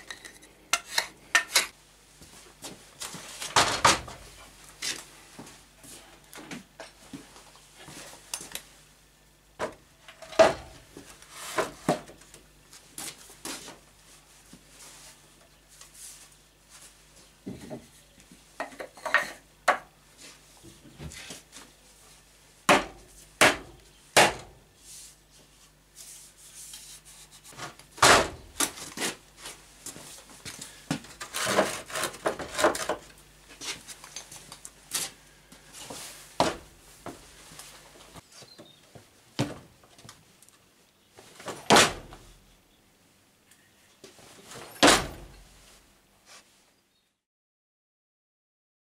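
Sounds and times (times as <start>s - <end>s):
wood scraping: 30.9s - 34.0s.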